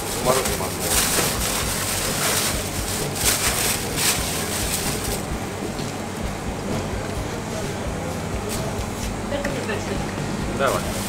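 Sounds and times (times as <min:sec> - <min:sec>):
crushed ice shifting: 0:00.0 - 0:05.3, 0:10.6 - 0:11.0
plastic bag rustling: 0:00.0 - 0:06.1, 0:10.6 - 0:11.0
steady low hum: 0:00.0 - 0:11.0.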